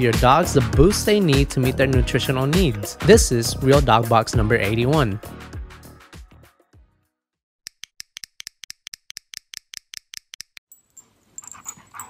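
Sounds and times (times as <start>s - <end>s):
rapid sharp light clicks: 7.7s - 10.6s.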